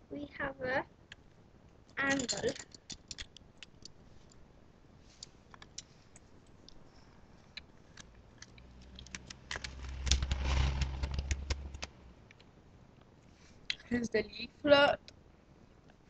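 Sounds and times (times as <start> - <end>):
low rumble: 8.3 - 12.3
wrapper rustle: 8.8 - 11.9.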